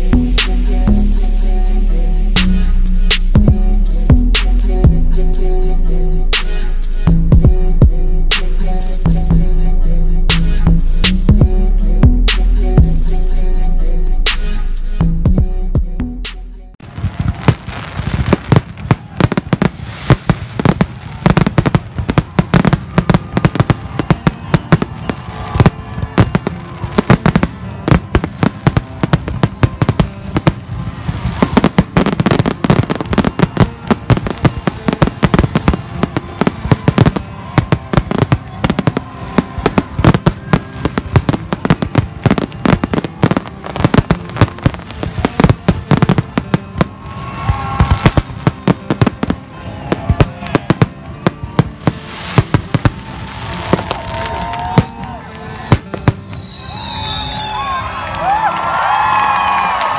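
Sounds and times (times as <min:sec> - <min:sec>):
fireworks crackling and banging: 0:16.8 - 0:59.9.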